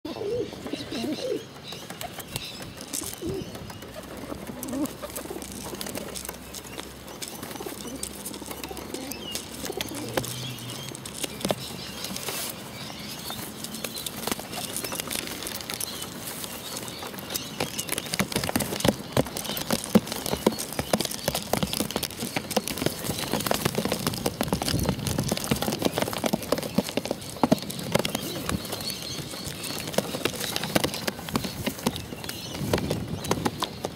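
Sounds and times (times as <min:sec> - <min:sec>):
pigeons cooing: 0:00.1 - 0:06.6, 0:07.2 - 0:11.4
beaks pecking plastic bottle: 0:02.0 - 0:33.9.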